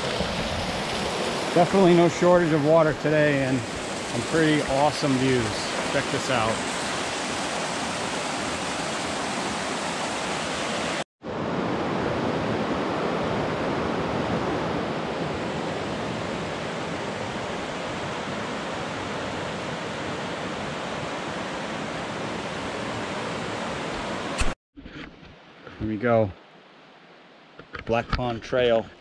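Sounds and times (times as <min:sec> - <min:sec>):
river rushing over rocks: 0:00.0 - 0:11.8.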